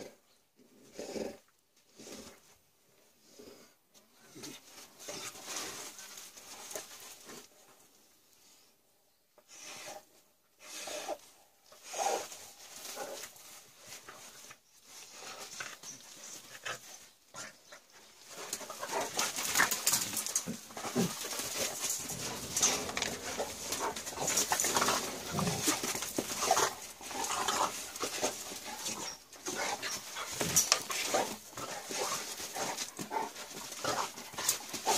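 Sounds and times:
dogs scuffling: 0:12.0 - 0:34.9
dog sounds: 0:15.4 - 0:34.9.

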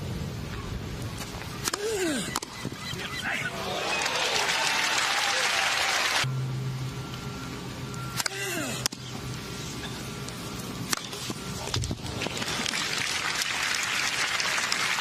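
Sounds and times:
tennis ball striking rackets: 0:01.2 - 0:02.7
crowd applause: 0:03.5 - 0:06.3, 0:12.2 - 0:15.0.

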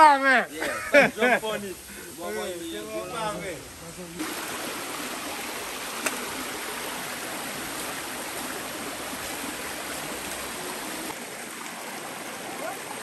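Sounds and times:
river water rushing over rocks: 0:04.2 - 0:13.0.

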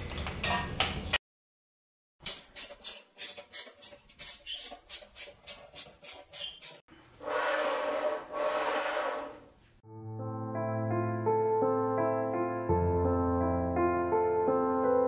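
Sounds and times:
screwdriver driving a screw: 0:02.2 - 0:06.8.

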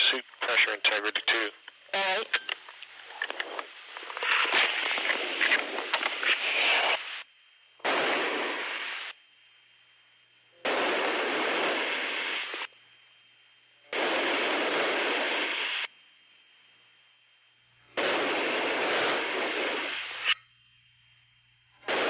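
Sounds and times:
faint steady tone and hum: 0:00.0 - 0:22.0
intercom static hiss bursts: 0:00.0 - 0:22.0
scattered clicks: 0:01.1 - 0:06.4.

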